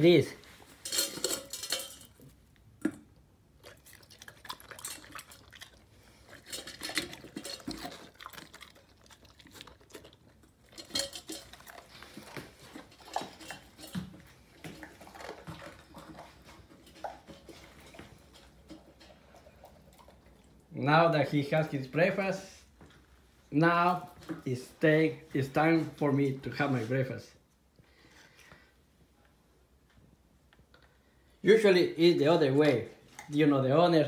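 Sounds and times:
clinks and scrapes on metal bowl: 0.8s - 2.2s, 6.2s - 8.7s, 10.6s - 19.7s
dog chewing: 3.5s - 20.7s.

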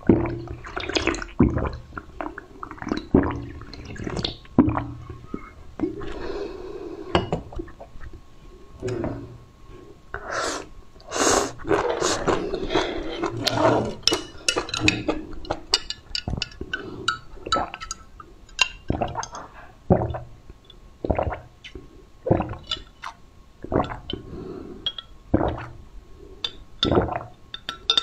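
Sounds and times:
sipping through a straw: 10.2s - 14.1s
slurping and chewing: 10.2s - 18.0s.

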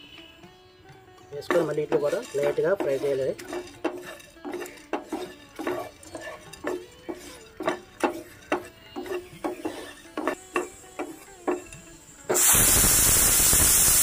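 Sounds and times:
metal spatula clinking on pan: 1.4s - 11.8s.

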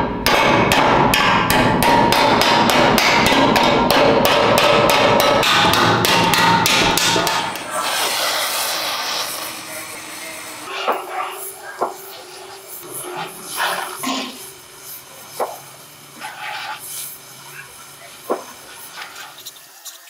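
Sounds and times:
hammer on steel panel: 0.0s - 15.7s
gas torch flame hissing: 4.5s - 20.0s.

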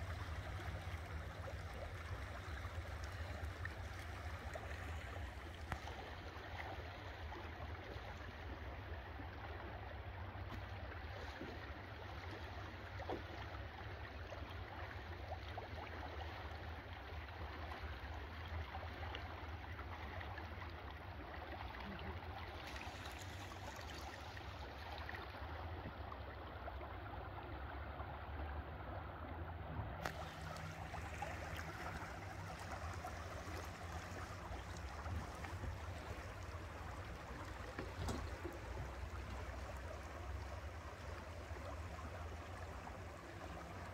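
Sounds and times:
rushing swirling water: 0.0s - 43.9s
steady low hum: 21.6s - 43.9s.

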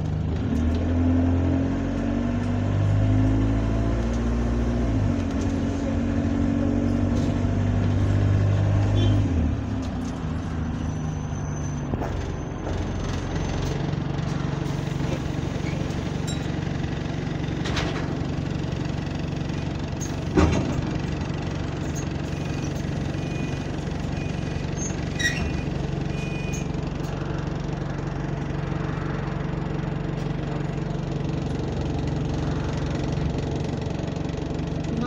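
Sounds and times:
bus diesel engine running: 0.0s - 35.0s.

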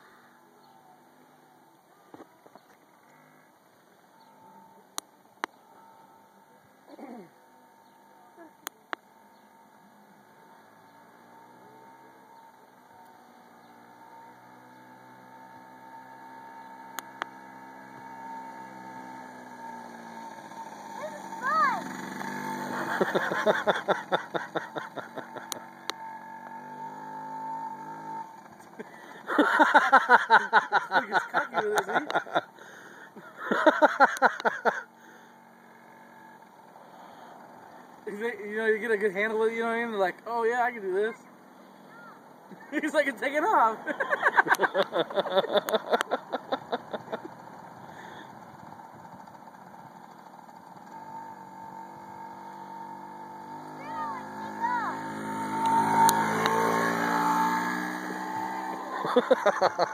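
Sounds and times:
dirt bike engine sputtering: 6.8s - 59.9s.

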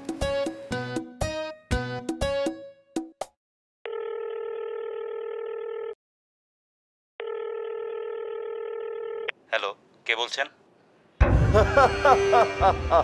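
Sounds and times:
telephone ringback tone: 3.9s - 6.0s, 7.2s - 9.3s.

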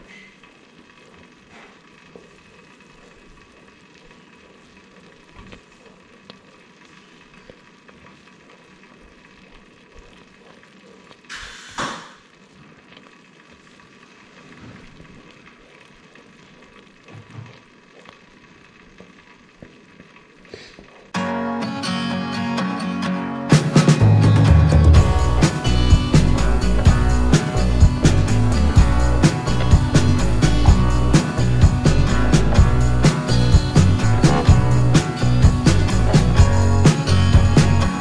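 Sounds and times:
jelly bubbling at a boil: 0.0s - 21.2s.

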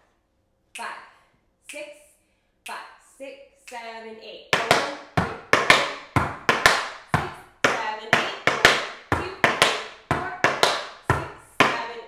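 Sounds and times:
tap shoes on wooden board: 4.6s - 11.9s.

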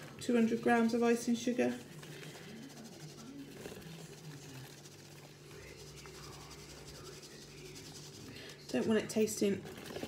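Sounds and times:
icing sugar rustling through sieve: 0.0s - 10.0s.

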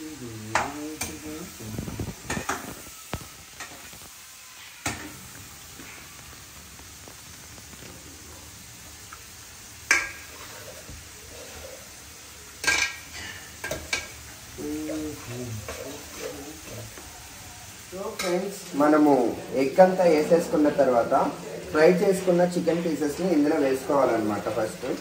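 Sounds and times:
food sizzling in frying pan: 0.0s - 25.0s
metal spatula scraping pan: 9.9s - 11.9s.

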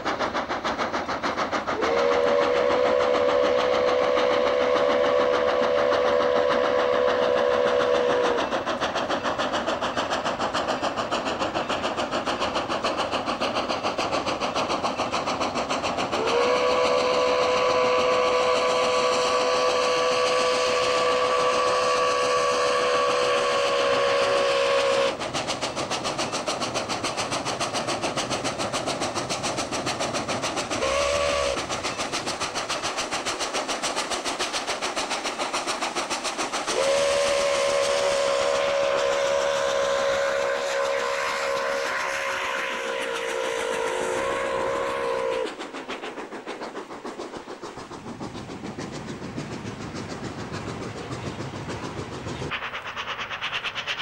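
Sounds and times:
train running: 0.0s - 54.0s
steam locomotive whistle: 1.8s - 8.6s, 16.2s - 25.2s, 30.7s - 31.8s, 36.7s - 45.7s.

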